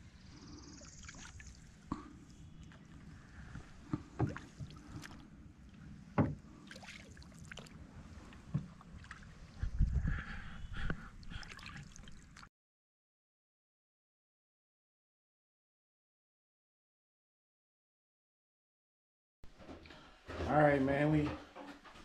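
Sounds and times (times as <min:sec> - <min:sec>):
paddle strokes in water: 0:00.3 - 0:09.7.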